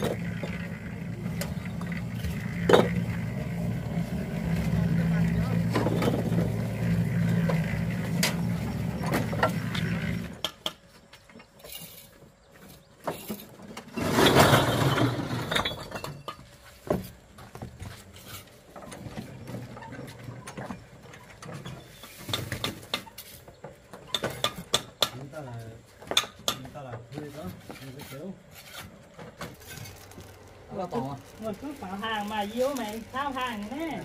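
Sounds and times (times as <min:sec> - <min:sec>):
motor running steadily: 0:00.0 - 0:11.2.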